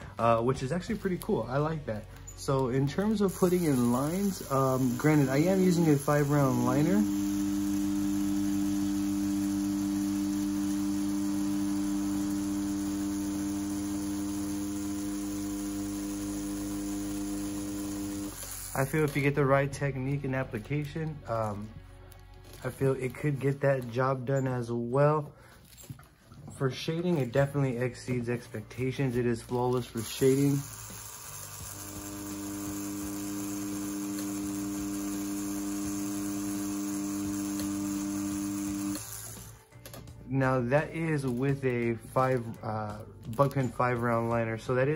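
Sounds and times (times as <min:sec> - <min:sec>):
tattoo pen humming: 0:00.0 - 0:19.5, 0:27.3 - 0:40.2.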